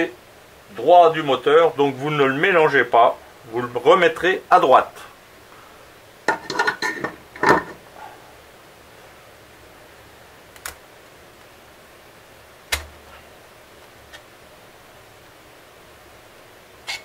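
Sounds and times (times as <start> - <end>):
metal engine parts clinking: 6.3 - 7.8.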